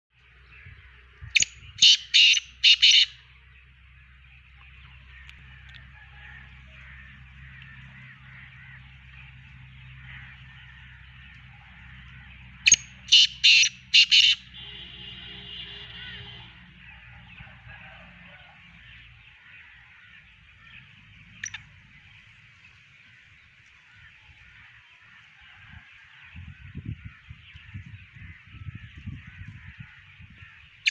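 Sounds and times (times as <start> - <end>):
francolin calling harshly: 1.3 - 3.2, 12.7 - 14.5.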